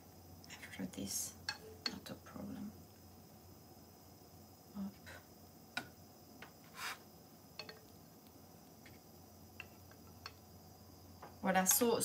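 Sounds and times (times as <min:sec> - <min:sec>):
chopstick scrape: 0:06.7 - 0:07.0
chopsticks ticking on a pan: 0:07.6 - 0:07.8.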